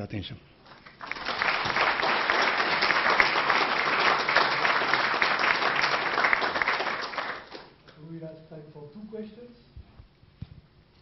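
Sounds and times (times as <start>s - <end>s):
audience applause: 0.7s - 7.7s.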